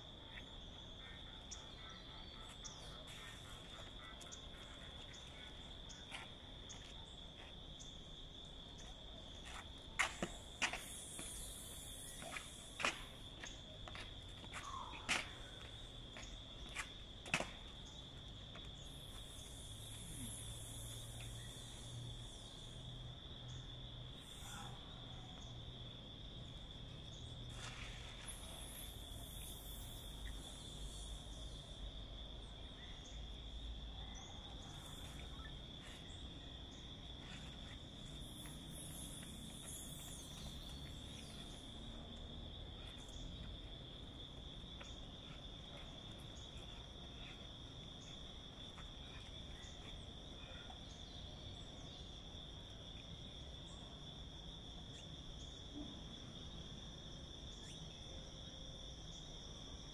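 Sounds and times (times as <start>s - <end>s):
steady high insect trill: 0.0s - 59.9s
higher insect buzzing calls: 10.4s - 14.8s, 18.6s - 24.7s, 34.8s - 42.3s.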